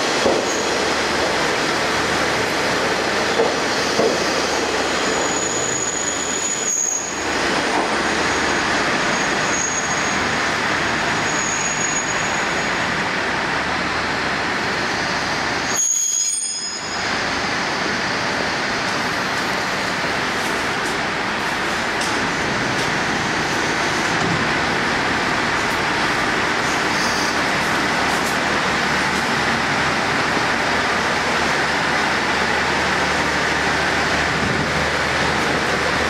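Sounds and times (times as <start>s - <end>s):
rail rumble: 0.0s - 36.0s
high-pitched wheel squeals: 5.0s - 7.3s, 15.7s - 17.0s.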